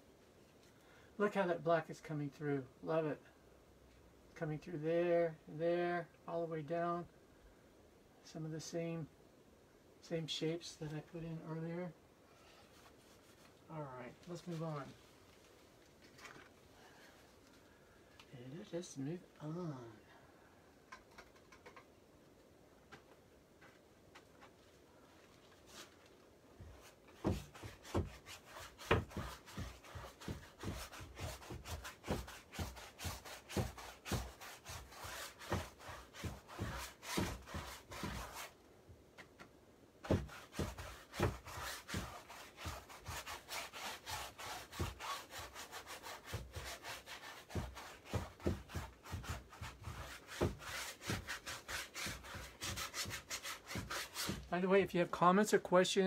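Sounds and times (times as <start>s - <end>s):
paintbrush scrubbing on canvas: 12.6s - 13.6s, 26.6s - 38.6s, 40.1s - 54.5s.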